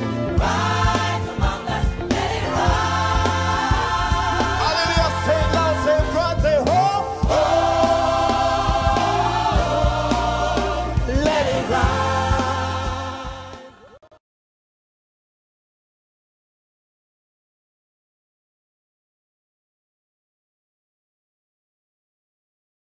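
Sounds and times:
steady bass: 0:00.0 - 0:13.8
gospel choir singing: 0:00.0 - 0:14.1.

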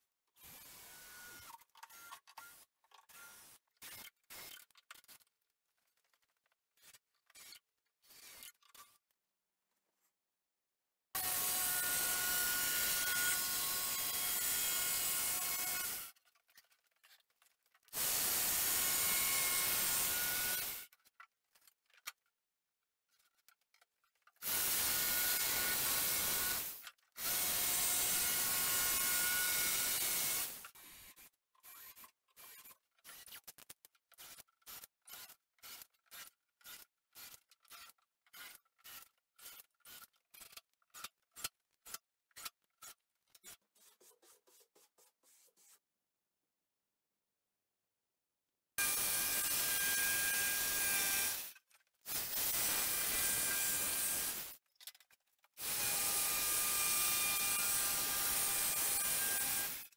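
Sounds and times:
jigsaw cutting plywood: 0:11.2 - 0:16.2, 0:17.9 - 0:20.9, 0:24.4 - 0:41.5, 0:48.8 - 0:54.6, 0:55.6 - 0:59.8.

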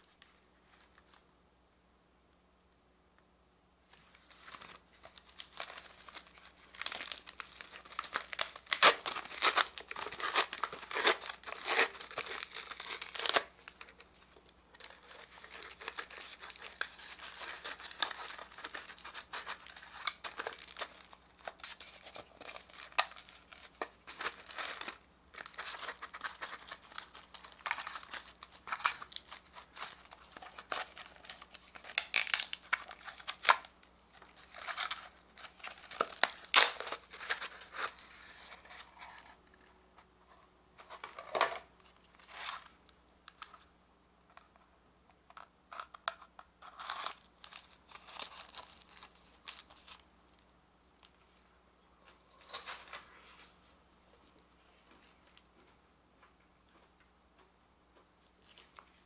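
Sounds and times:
plastic wrapper crinkling: 0:04.0 - 0:39.7, 0:45.3 - 0:51.5, 0:54.8 - 0:55.5, 0:58.2 - 0:59.0.

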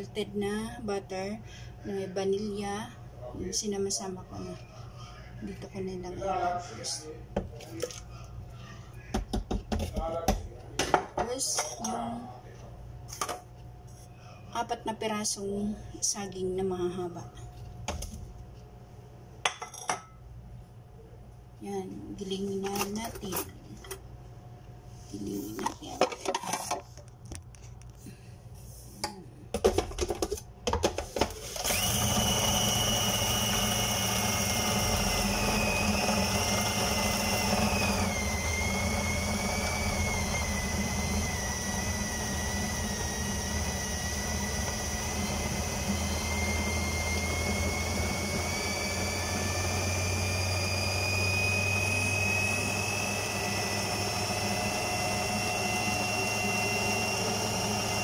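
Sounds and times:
food processor motor running: 0:31.2 - 0:58.0.

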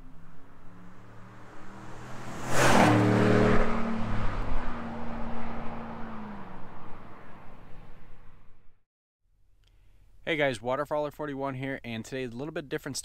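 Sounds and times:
pickup truck driving past: 0:00.0 - 0:08.7.

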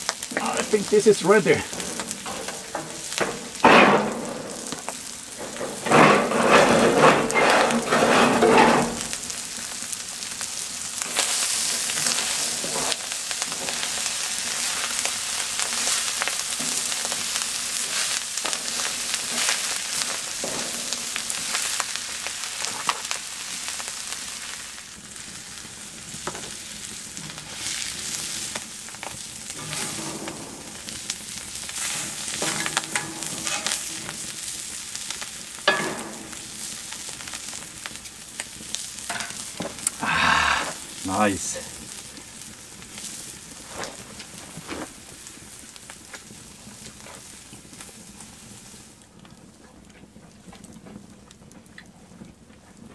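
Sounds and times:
food sizzling in a pan: 0:00.0 - 0:49.2
spatula scraping a pan: 0:01.7 - 0:09.1, 0:29.5 - 0:35.0.

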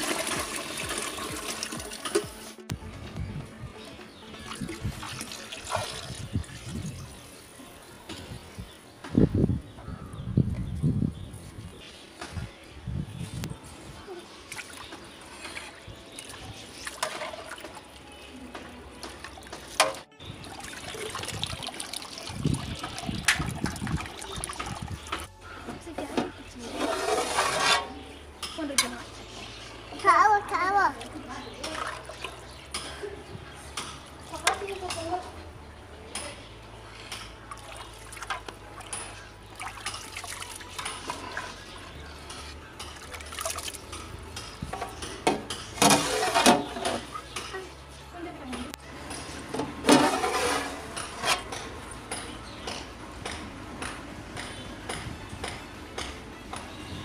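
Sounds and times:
liquid sloshing in pot: 0:04.4 - 0:07.0, 0:19.3 - 0:25.3, 0:49.6 - 0:51.5
ladle stirring water in pot: 0:14.7 - 0:18.0, 0:19.0 - 0:25.3, 0:26.7 - 0:28.0, 0:37.1 - 0:47.3, 0:49.2 - 0:51.6.

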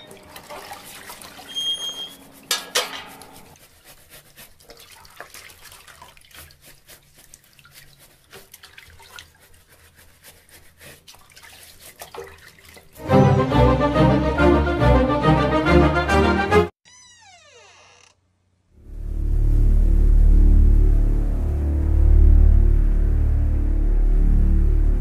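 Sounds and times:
water splashing at a tap: 0:00.0 - 0:03.6, 0:04.3 - 0:13.0
clothes washed by hand: 0:00.0 - 0:13.4.

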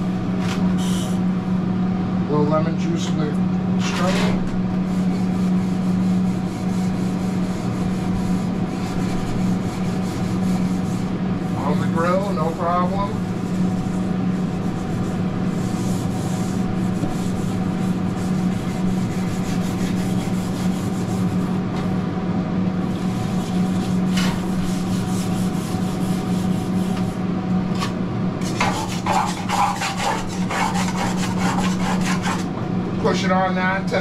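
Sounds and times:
steady low hum: 0:00.0 - 0:34.0
scrubbing steel griddle: 0:28.4 - 0:32.4.

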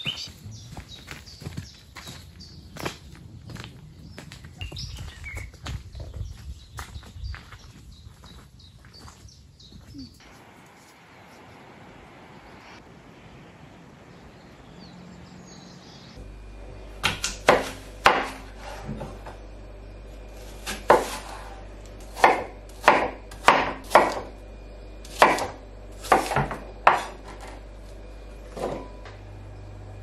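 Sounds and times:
knife chopping on wooden board: 0:17.0 - 0:19.2, 0:20.4 - 0:24.3, 0:25.1 - 0:27.6.

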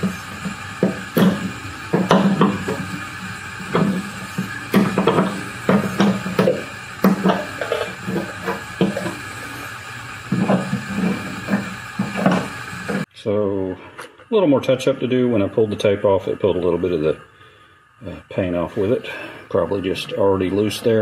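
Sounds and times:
drill bit scraping metal: 0:00.0 - 0:13.1.

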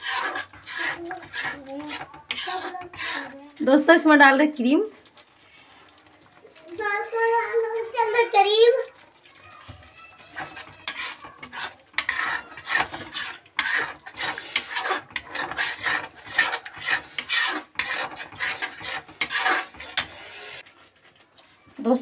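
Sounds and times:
steel spoon scraping a metal pan: 0:00.0 - 0:03.7, 0:05.4 - 0:06.0, 0:10.3 - 0:20.6.

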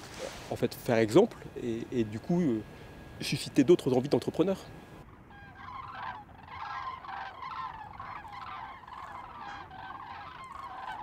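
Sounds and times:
poultry calling: 0:05.0 - 0:11.0.

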